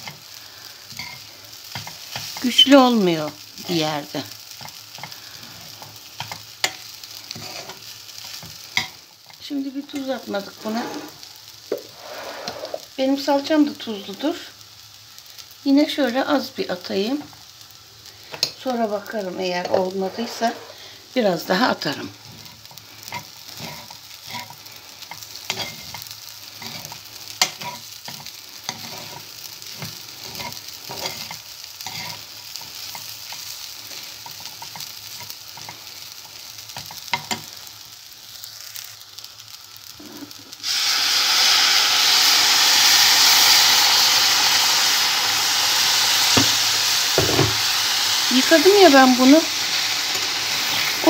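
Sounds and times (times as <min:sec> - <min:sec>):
loud sizzling hiss: 0:00.0 - 0:51.0
metal spoon scraping a pot: 0:07.3 - 0:07.8, 0:10.6 - 0:11.2, 0:11.9 - 0:12.9, 0:19.6 - 0:20.8, 0:26.6 - 0:32.2.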